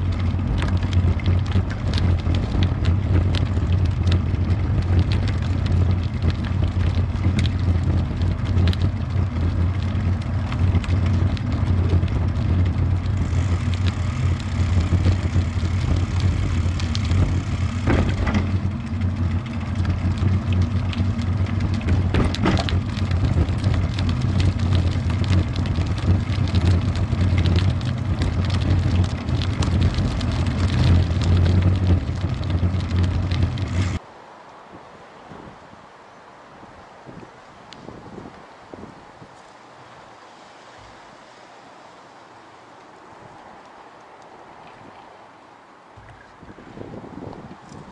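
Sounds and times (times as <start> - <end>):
wind noise on microphone: 0.0 - 34.0, 36.5 - 40.1, 46.0 - 47.9
rolling road noise: 0.0 - 47.9
knocks from bumps: 17.0 - 18.8, 21.6 - 34.0.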